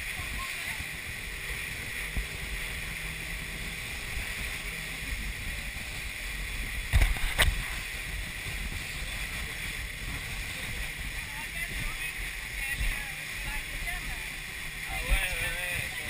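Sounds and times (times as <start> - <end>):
motorboat motor drone: 0.0 - 16.0
rushing water: 0.0 - 16.0
wind: 0.0 - 16.0
boat hull thumping on waves: 6.5 - 16.0.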